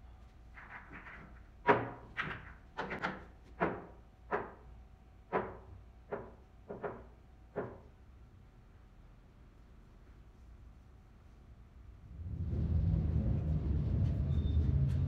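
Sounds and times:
pool balls clacking: 0.6 - 4.7, 5.3 - 8.0.

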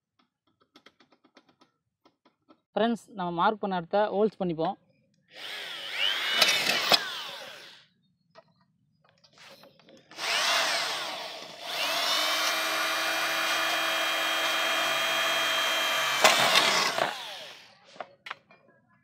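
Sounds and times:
electric drill boring sheet metal: 5.4 - 7.9, 10.1 - 17.8.

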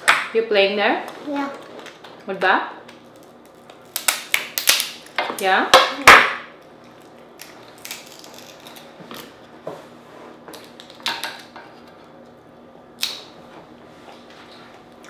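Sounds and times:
crab shell cracking: 3.0 - 5.1, 7.0 - 8.9.

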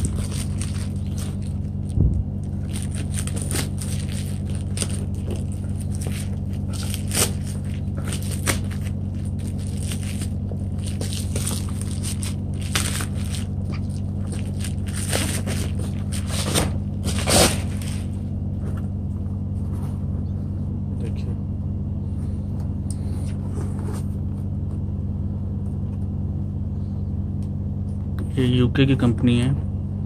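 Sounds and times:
bubble wrap crackle: 0.0 - 18.4
bubble wrap crinkling: 0.0 - 18.4
steady low hum: 0.0 - 30.0.

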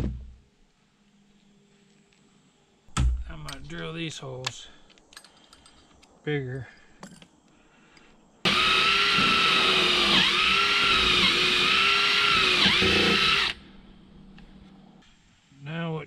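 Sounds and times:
cordless drill boring: 8.5 - 13.6.

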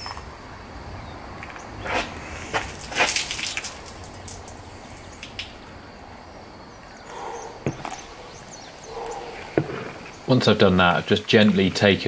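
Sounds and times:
water drips: 1.5 - 5.9
water draining and splashing: 1.9 - 5.7.

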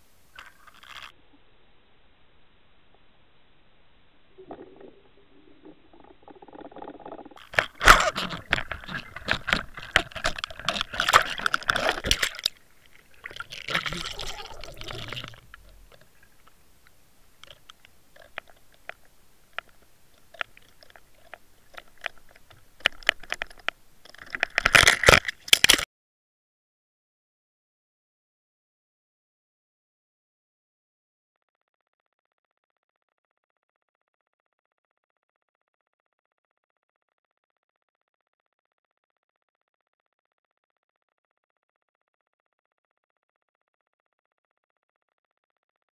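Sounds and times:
underwater crackling and clicking: 0.3 - 1.2, 4.3 - 25.8.

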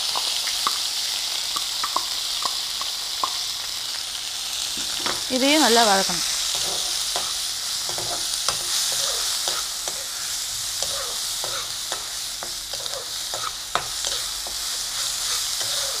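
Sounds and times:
spices sizzling in oil: 0.0 - 16.0
spatula scraping and tapping pan: 6.5 - 16.0.

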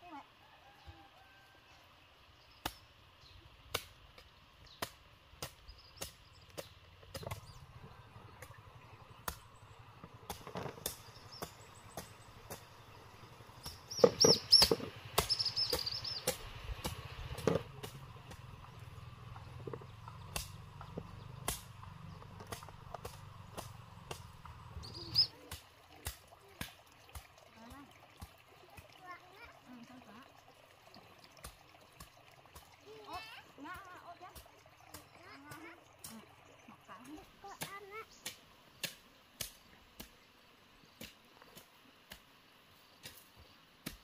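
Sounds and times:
bamboo pieces knocking and clacking: 13.6 - 15.4, 19.4 - 24.6.

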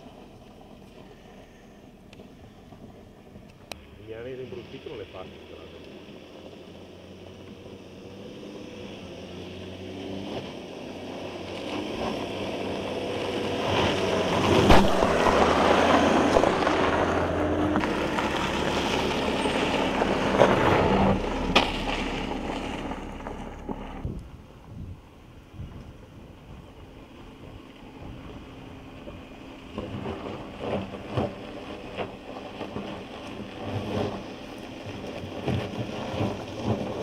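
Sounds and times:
car engine running: 0.0 - 37.0
tyres crunching over gravel: 10.5 - 24.7, 25.9 - 37.0
stones knocking: 14.5 - 23.8.

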